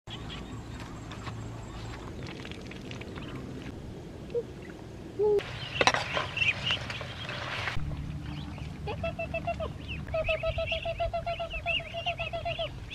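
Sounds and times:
low outdoor rumble: 0.1s - 12.9s
ducklings peeping: 8.2s - 12.9s.

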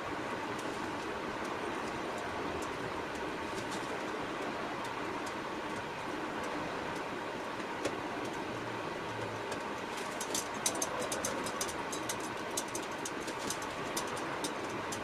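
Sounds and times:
clock parts clicking: 9.5s - 15.0s.

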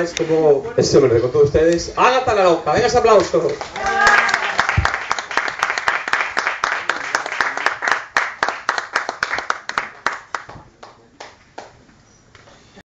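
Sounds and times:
hands clapping close by: 3.4s - 11.8s
audience applause: 3.5s - 11.7s.

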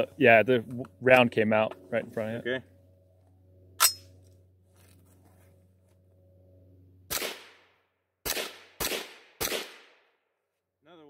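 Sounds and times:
gunshots: 7.1s - 7.6s, 8.2s - 10.0s.

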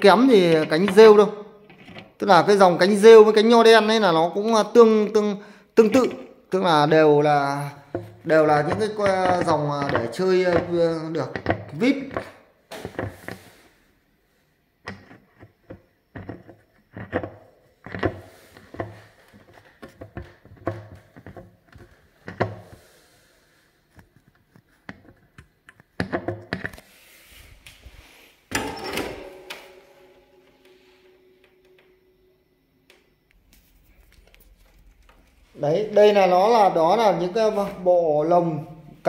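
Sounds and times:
plastic fan parts knocking and clicking: 7.9s - 13.1s, 14.9s - 22.7s.

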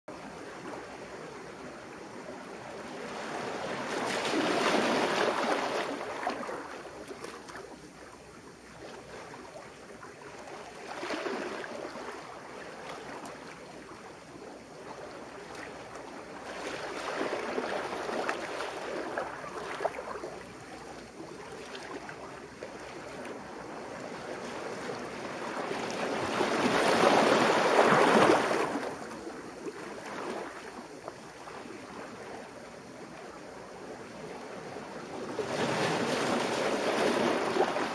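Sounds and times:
sea waves washing over boulders: 1.8s - 7.6s, 21.8s - 32.2s, 34.1s - 37.9s.

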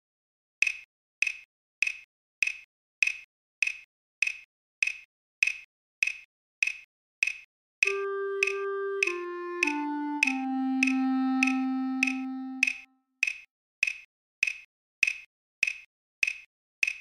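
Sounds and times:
metronome clicks: 0.6s - 17.0s
clarinet holding a note: 7.8s - 12.9s.

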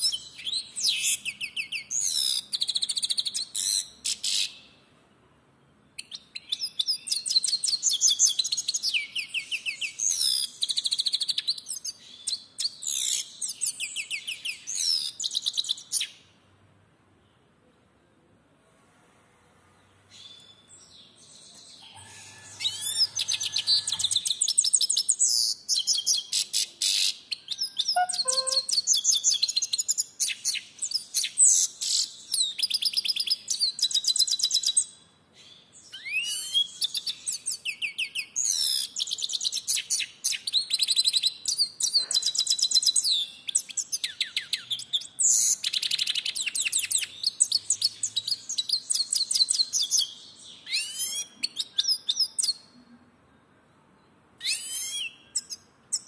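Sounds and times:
goldfinch singing: 27.9s - 29.4s.

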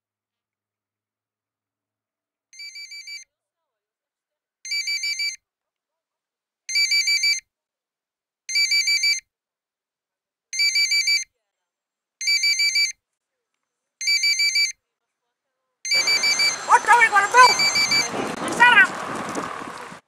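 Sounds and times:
electronic telephone ringtone: 16.0s - 18.1s.

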